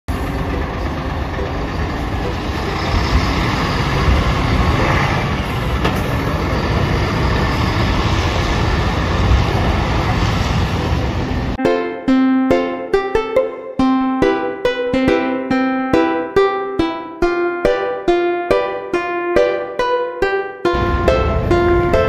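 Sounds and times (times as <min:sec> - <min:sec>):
bus diesel engine rumbling: 0:00.1 - 0:11.6, 0:20.7 - 0:22.0
road noise: 0:00.1 - 0:11.6, 0:20.7 - 0:22.0.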